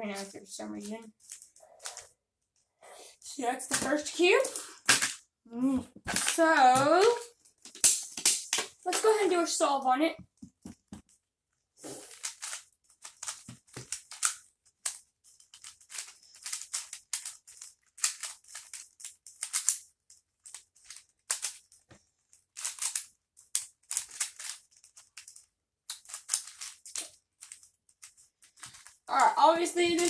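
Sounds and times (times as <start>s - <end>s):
plastic puzzle cube clicking: 12.1s - 21.7s, 22.5s - 28.9s.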